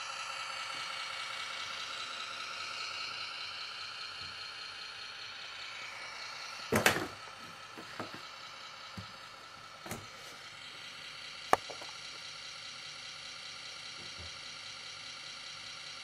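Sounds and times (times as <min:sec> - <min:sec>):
toy truck motor whining: 0:00.0 - 0:12.3.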